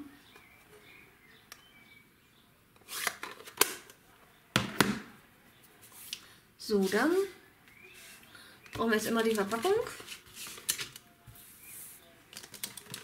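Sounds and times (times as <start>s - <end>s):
paper rustling: 9.1s - 13.0s.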